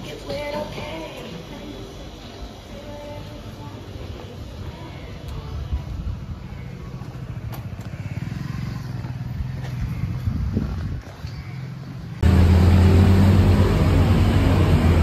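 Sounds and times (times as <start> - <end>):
motor vehicle low drone: 5.2 - 11.0, 11.8 - 15.0.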